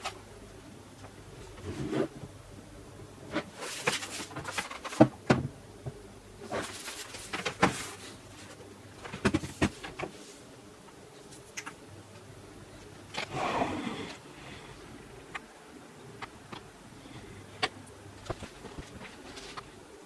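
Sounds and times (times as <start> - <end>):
laptop being handled: 6.5 - 10.2, 17.6 - 19.8.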